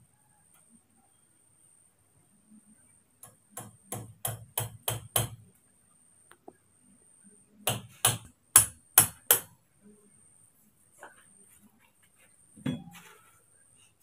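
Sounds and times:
hammer striking nail: 3.2 - 5.4, 7.7 - 9.5.

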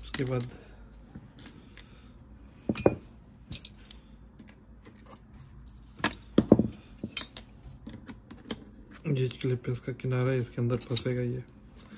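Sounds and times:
small screws clinking on metal: 2.7 - 4.0, 10.7 - 11.6.

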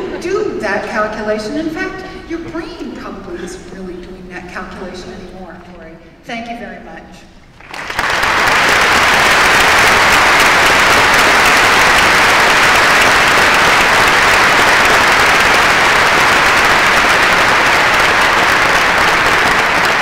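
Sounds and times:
audience applauding: 7.6 - 20.0.

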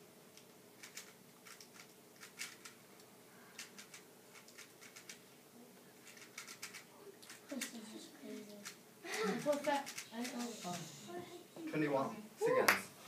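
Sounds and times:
faint room hum: 0.0 - 13.0
puzzle cube clicking: 6.0 - 6.8.

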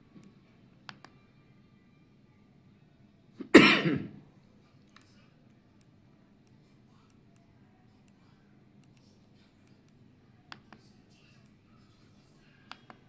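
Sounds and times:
person coughing: 3.4 - 4.2.

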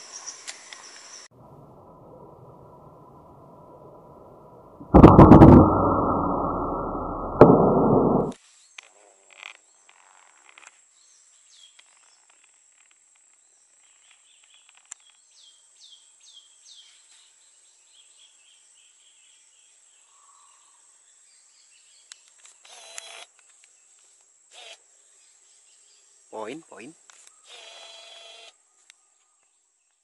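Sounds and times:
bang: 4.8 - 8.4
muffled booming shot: 4.8 - 8.4.

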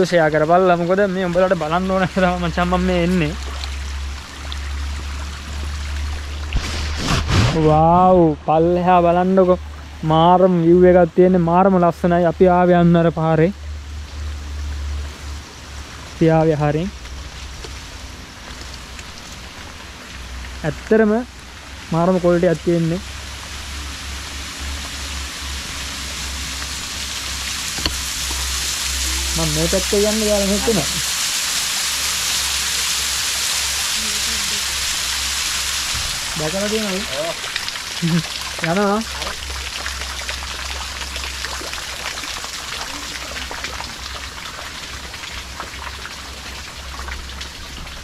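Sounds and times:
rain pattering: 0.0 - 6.6, 8.0 - 48.0
water splashing on rock: 5.9 - 7.8
low rumble: 23.1 - 31.2.

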